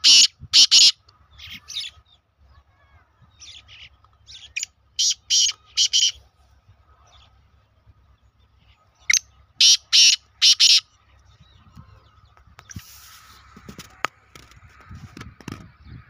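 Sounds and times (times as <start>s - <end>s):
francolin calling: 0.0s - 2.0s, 2.6s - 6.2s, 8.7s - 11.0s.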